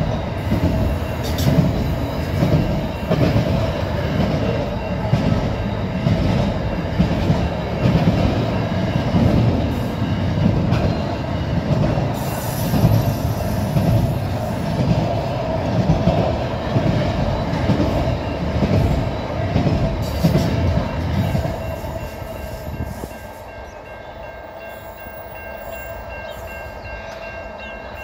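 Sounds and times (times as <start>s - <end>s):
crossing warning bells ringing: 0.0s - 28.0s
freight train wheels rumbling: 0.0s - 28.0s.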